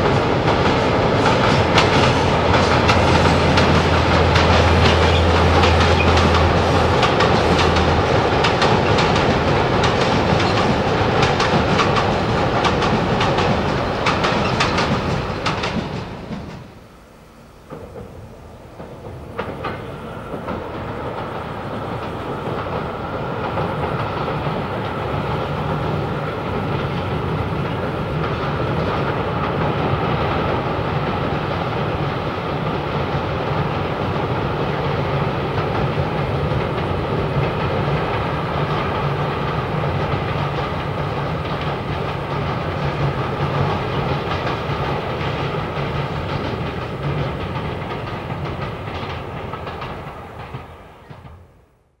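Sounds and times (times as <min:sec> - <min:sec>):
freight wagons rumbling: 0:00.0 - 0:16.8
wheels clattering over rail joints: 0:00.0 - 0:16.8.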